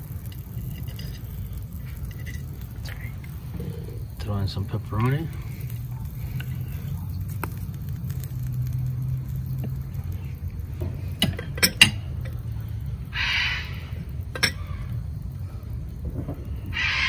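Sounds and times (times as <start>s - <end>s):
steady low hum: 0.0s - 17.0s
macaw squawking: 13.1s - 13.9s, 16.7s - 17.0s.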